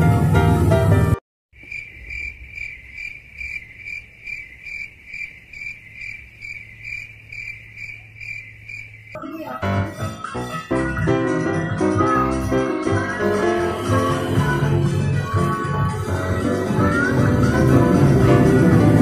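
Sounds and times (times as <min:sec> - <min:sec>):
keyboard music: 0:00.0 - 0:01.2, 0:09.2 - 0:19.0
cricket chirping sound effect: 0:01.6 - 0:09.2.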